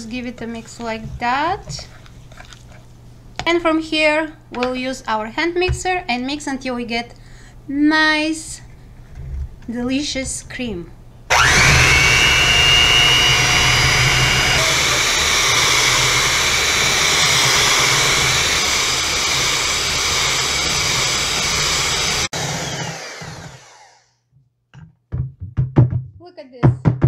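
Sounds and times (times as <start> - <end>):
electric hand mixer whining: 11.3 - 24.1.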